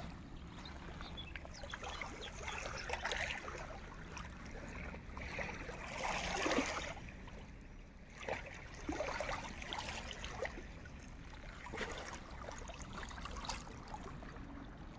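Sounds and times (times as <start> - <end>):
light splashes: 0.0 - 14.9
waves lapping on pebbles: 5.2 - 7.1.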